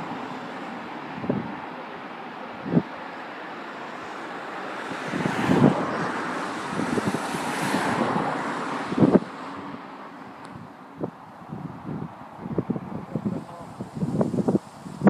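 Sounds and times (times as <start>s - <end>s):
wind buffeting microphone: 0.0s - 1.7s, 2.5s - 3.0s, 4.4s - 15.0s.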